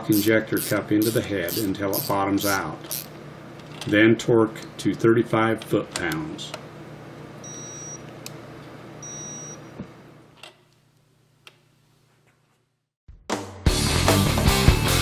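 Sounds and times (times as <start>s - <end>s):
low shop hum: 0.0s - 12.9s
torque wrench beeps: 0.1s - 3.1s, 7.4s - 8.0s, 9.0s - 9.7s.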